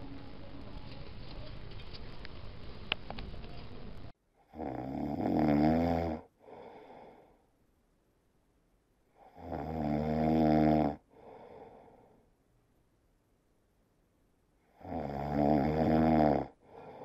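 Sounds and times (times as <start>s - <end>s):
kitten snoring: 4.4s - 7.1s, 9.2s - 11.8s, 14.7s - 17.0s.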